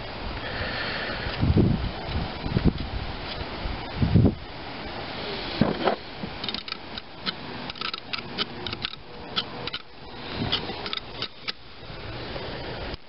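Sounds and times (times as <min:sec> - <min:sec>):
metallic clicking of hand tool: 0:06.4 - 0:09.9, 0:10.5 - 0:11.6.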